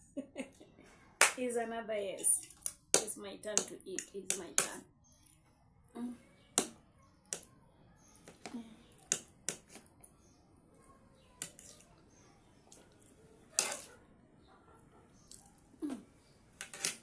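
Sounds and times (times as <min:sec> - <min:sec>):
cutlery clicking against a plate: 0:13.6 - 0:13.9.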